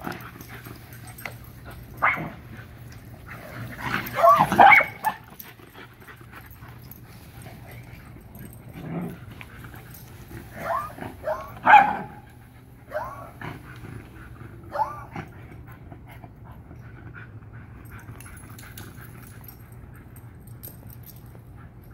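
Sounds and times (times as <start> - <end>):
dogs barking and yipping: 0.0 - 15.7.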